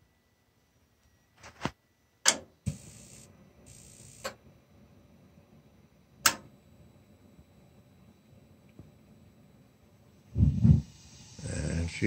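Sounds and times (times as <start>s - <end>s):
loud burner click: 2.2s - 3.1s, 6.2s - 6.6s
spark igniter clicks: 6.2s - 6.5s
short gas hisses: 10.4s - 12.0s.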